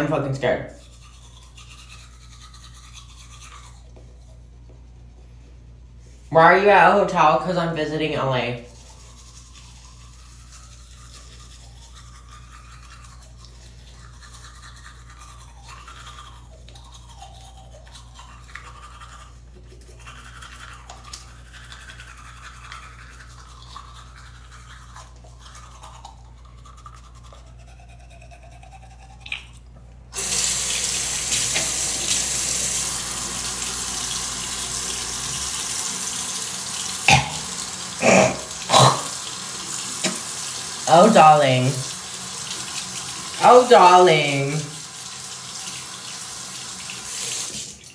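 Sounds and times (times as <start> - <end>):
toothbrush scrubbing: 0.0 - 47.9
tap water running into sink: 30.2 - 43.7, 44.6 - 47.9.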